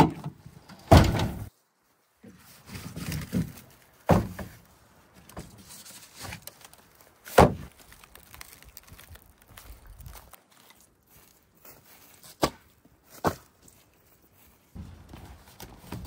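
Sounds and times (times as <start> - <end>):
tailgate dropping open thunk: 0.0 - 1.5
firewood thudding on tailgate: 3.3 - 4.6, 7.3 - 7.7.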